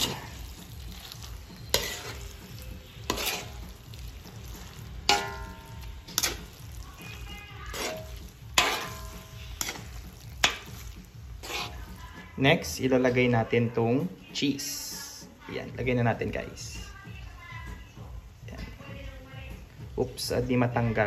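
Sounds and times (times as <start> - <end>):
metal spoon scraping a wok: 0.0 - 12.3.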